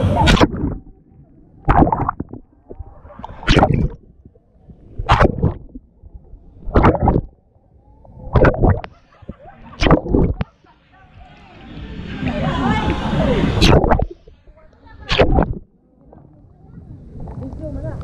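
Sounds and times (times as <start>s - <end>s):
water splashing and gurgling: 0.0s - 10.6s, 13.3s - 14.4s, 15.0s - 16.3s.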